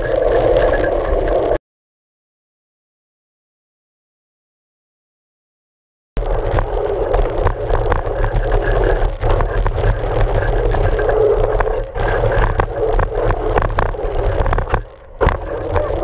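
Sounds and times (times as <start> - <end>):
bike and gravel rattling: 0.0 - 1.6, 6.2 - 16.0
wind rumble: 0.0 - 1.6, 6.2 - 16.0.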